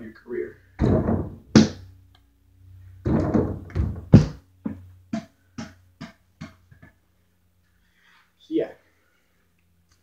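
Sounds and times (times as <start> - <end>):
basketball bouncing on floor: 3.0 - 6.9.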